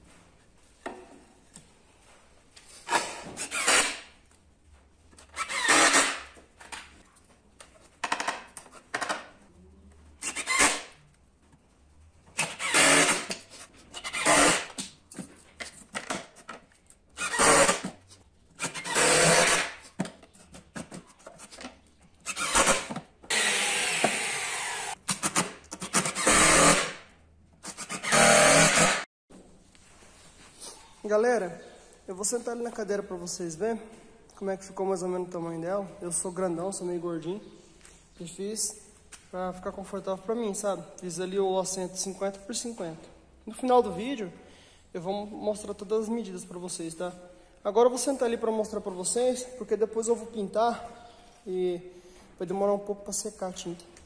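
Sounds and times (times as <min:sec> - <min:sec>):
wood being cut: 0:05.4 - 0:06.2, 0:12.4 - 0:13.4, 0:14.1 - 0:14.7, 0:17.2 - 0:17.9, 0:18.6 - 0:19.8, 0:22.3 - 0:25.0, 0:25.9 - 0:27.0, 0:27.6 - 0:29.1.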